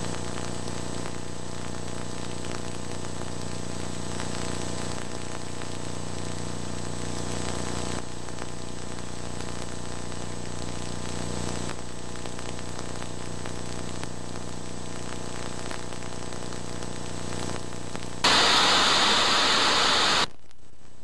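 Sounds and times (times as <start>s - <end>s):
tape hiss: 0.0s - 21.0s
thin high whine: 18.2s - 20.3s.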